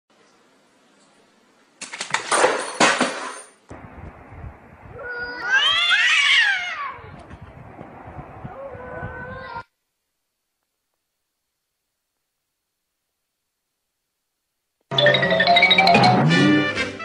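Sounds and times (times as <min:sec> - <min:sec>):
cat yowling: 0:05.0 - 0:07.2, 0:08.5 - 0:09.7
lower cat call: 0:08.4 - 0:09.7.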